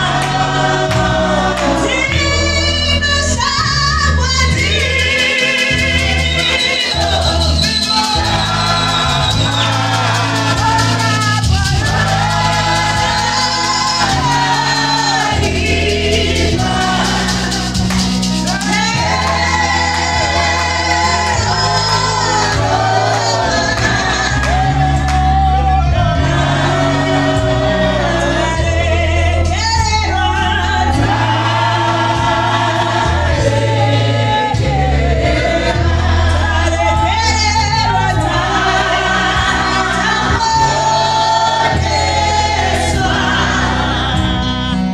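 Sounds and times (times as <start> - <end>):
backing singers: 0.0 - 44.9
bass accompaniment: 0.0 - 44.9
woman singing into microphone: 0.0 - 44.9.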